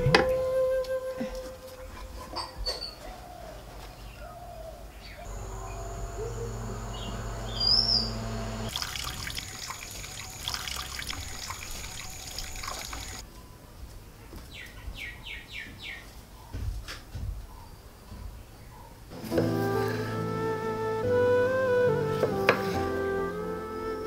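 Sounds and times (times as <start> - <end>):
bird chirp: 2.4 - 13.6
water splashing and trickling: 8.3 - 13.2.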